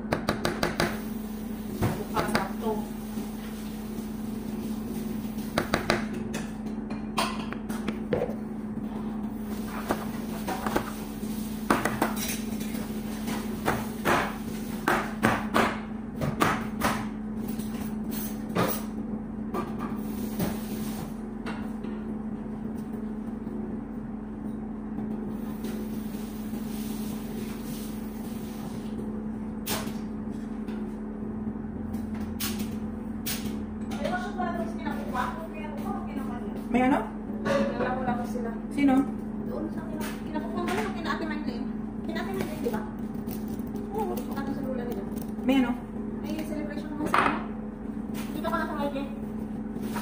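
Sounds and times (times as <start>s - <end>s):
steady hum: 0.0s - 50.0s.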